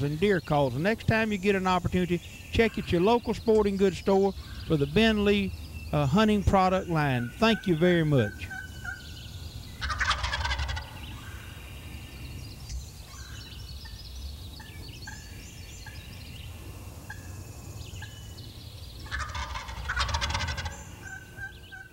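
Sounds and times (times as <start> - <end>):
turkey gobbling: 6.8 - 9.2, 9.8 - 11.5, 17.1 - 17.4, 19.0 - 21.9.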